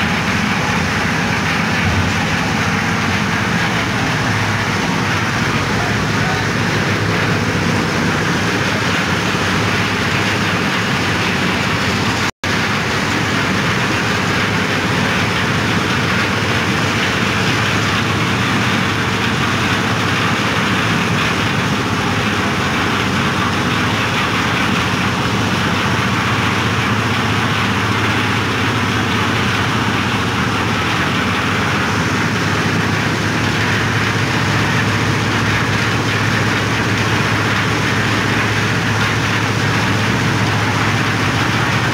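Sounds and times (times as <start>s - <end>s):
concrete mixer engine humming: 0.0s - 41.9s.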